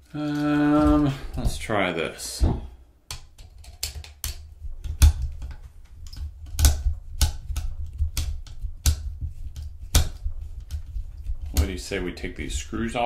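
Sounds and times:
dull handling bumps: 0:00.6 - 0:02.8.

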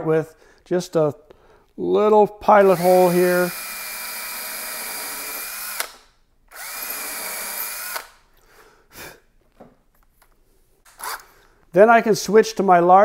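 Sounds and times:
power drill boring into wood: 0:02.6 - 0:08.2, 0:11.0 - 0:11.3.

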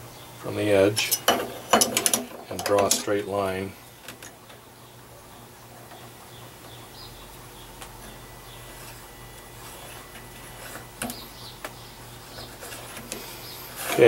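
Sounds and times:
pencil scratching on metal: 0:08.6 - 0:11.2, 0:12.2 - 0:14.0.

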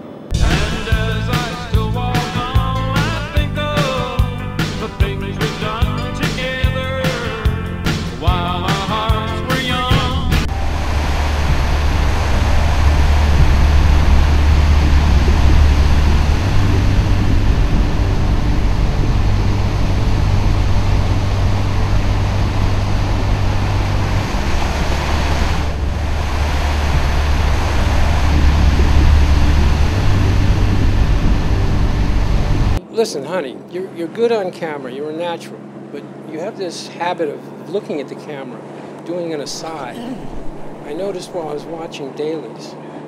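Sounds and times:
rushing noise: 0:00.0 - 0:34.0, 0:38.6 - 0:42.5
steady low rumble: 0:00.0 - 0:35.6, 0:36.4 - 0:42.4.

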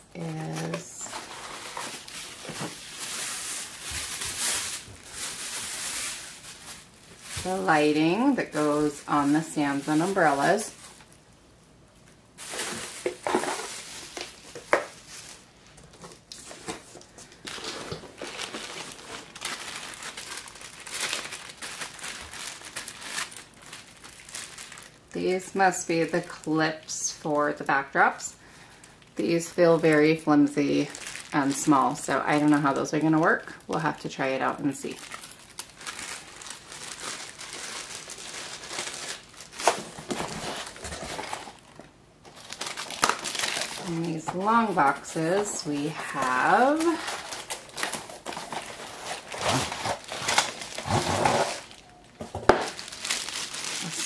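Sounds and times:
plastic wrapping crinkling: 0:00.1 - 0:26.6, 0:27.6 - 0:54.0
cardboard rustling: 0:00.4 - 0:08.0, 0:12.4 - 0:24.6, 0:35.2 - 0:54.0.

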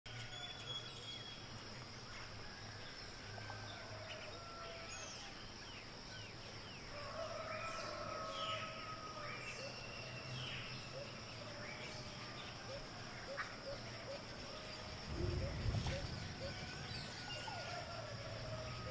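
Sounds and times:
high insect drone: 0:00.1 - 0:18.9.

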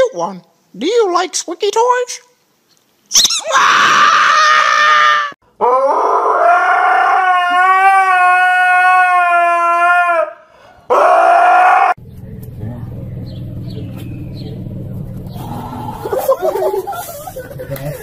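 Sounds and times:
husky howling: 0:03.4 - 0:12.0.

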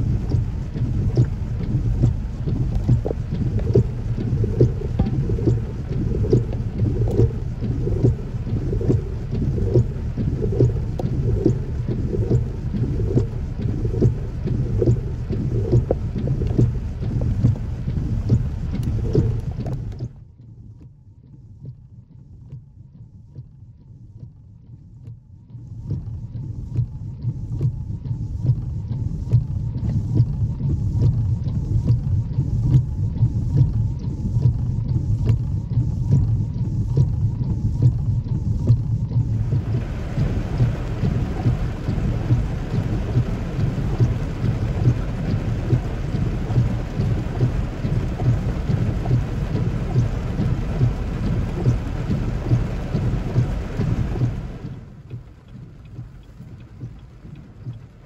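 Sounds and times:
heavy rain: 0:00.0 - 0:19.9, 0:39.3 - 0:57.9
wind rumbling on microphone: 0:00.0 - 0:20.2, 0:28.5 - 0:58.0
raindrops ticking: 0:00.0 - 0:20.3, 0:25.8 - 0:58.0.

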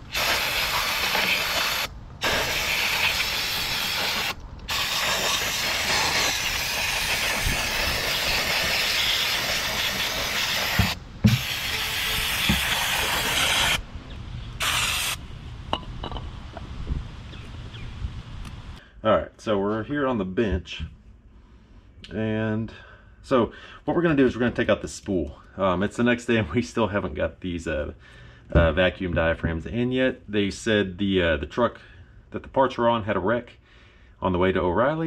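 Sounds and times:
aerosol can spraying: 0:00.0 - 0:13.8, 0:14.6 - 0:15.2.

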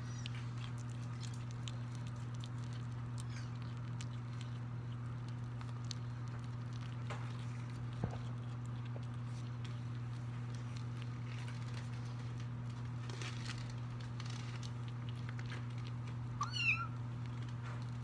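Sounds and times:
kittens chewing clicks: 0:00.0 - 0:18.0
steady low hum: 0:00.0 - 0:18.0
paws padding on wooden floor: 0:04.2 - 0:18.0
kitten meowing: 0:16.4 - 0:17.0.

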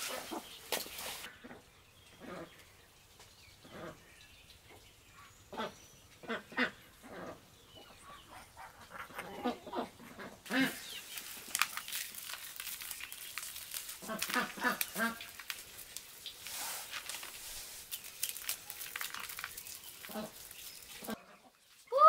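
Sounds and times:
high hissing rustle: 0:00.0 - 0:01.3, 0:10.5 - 0:21.2
ducks quacking: 0:05.5 - 0:11.0.

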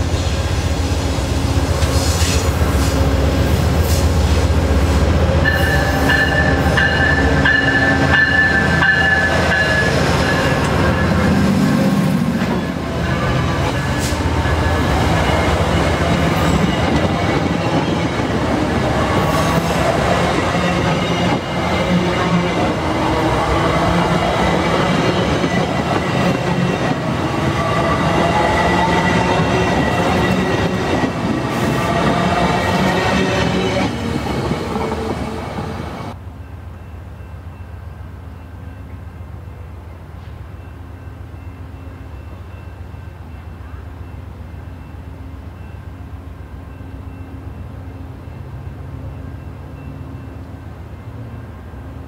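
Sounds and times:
train wheels rumbling on rails: 0:00.0 - 0:36.2.

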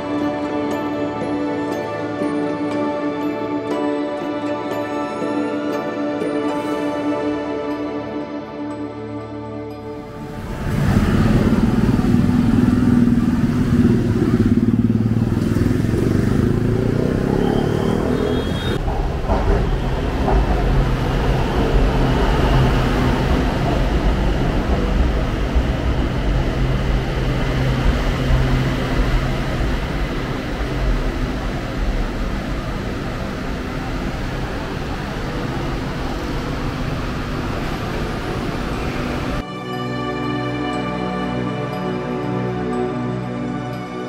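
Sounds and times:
engine running: 0:10.1 - 0:39.4.

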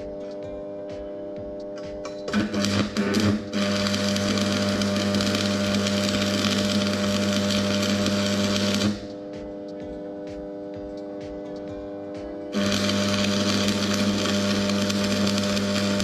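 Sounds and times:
electric arc welding crackling hiss: 0:02.3 - 0:09.1, 0:12.5 - 0:16.0.

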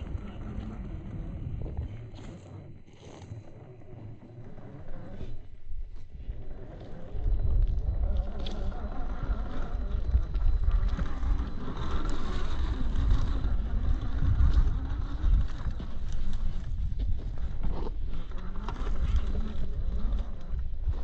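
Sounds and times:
electric motor and gears whining: 0:00.0 - 0:21.0.

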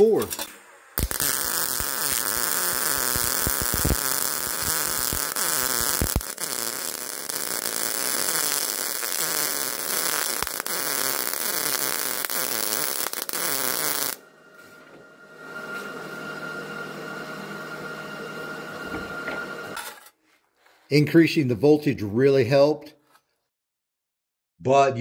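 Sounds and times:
welding arc crackling and popping: 0:00.0 - 0:14.2.

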